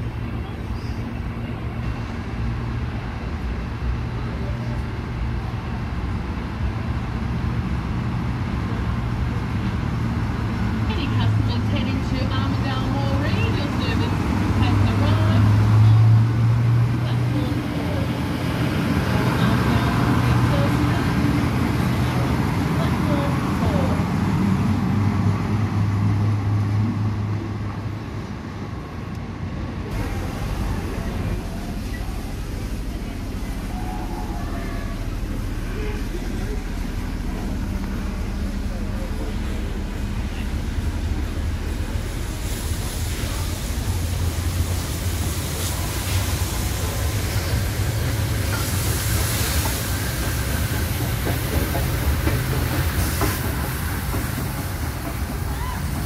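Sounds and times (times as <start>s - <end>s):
railcar engine humming: 0.0s - 56.0s
wheels rumbling on track: 0.0s - 56.0s
broad low rumble: 29.9s - 45.2s
steam hiss: 41.6s - 56.0s.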